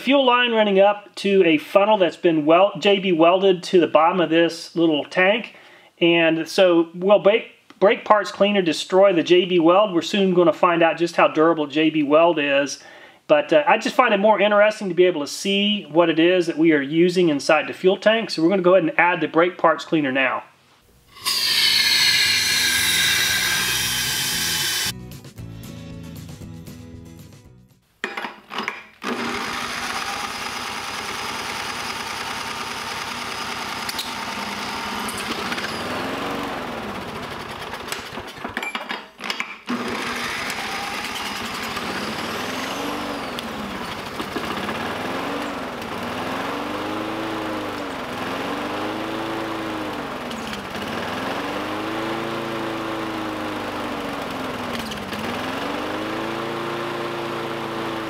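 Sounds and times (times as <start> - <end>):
electric drill spinning: 21.1 - 25.0, 29.0 - 38.4, 39.7 - 48.5
small engine surging unevenly: 21.2 - 24.9, 29.2 - 38.2, 39.7 - 58.0.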